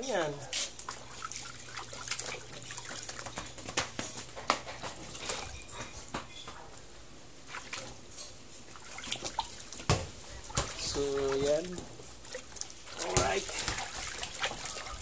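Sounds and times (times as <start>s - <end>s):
hose running water: 0.1s - 3.7s, 7.5s - 15.0s
water splashing in a plastic tub: 0.1s - 4.1s, 7.4s - 8.0s, 8.6s - 15.0s.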